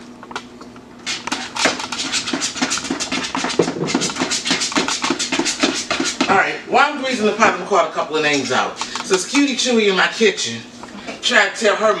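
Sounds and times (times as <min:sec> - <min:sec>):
spoon stirring batter in plastic bowl: 0:01.1 - 0:06.3.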